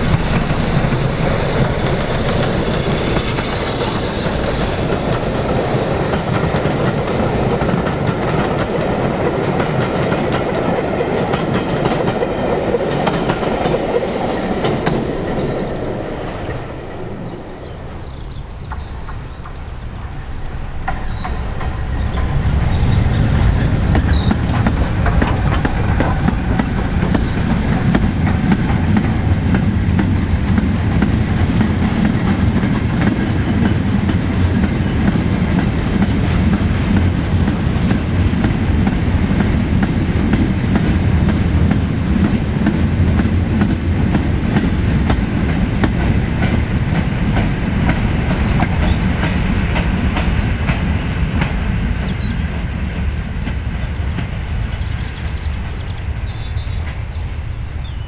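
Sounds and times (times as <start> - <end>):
train rumbling: 0.0 - 58.0
wheels clicking over rail joints: 23.5 - 52.2.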